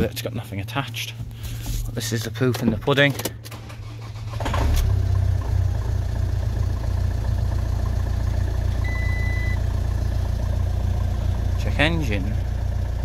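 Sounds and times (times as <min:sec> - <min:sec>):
diesel engine idling: 0:03.4 - 0:13.0
high dashboard beep: 0:08.8 - 0:09.6.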